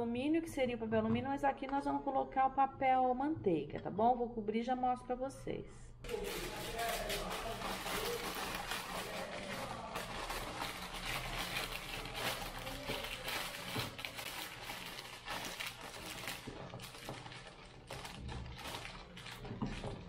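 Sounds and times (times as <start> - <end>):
parchment paper crinkling: 6.1 - 20.0.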